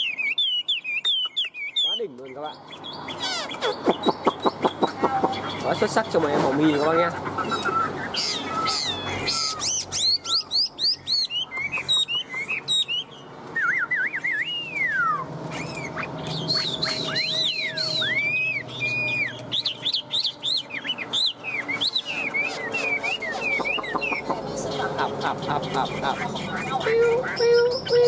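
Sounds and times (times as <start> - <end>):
bird singing whistled song: 0.0 - 5.0, 7.4 - 24.3.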